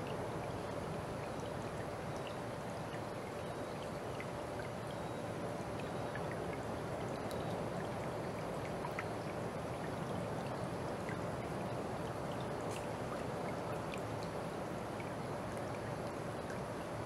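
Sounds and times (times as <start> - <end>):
faint steady tone: 0.0 - 17.0
stream flowing and trickling: 0.0 - 17.0
faint high ticks: 5.8 - 7.6.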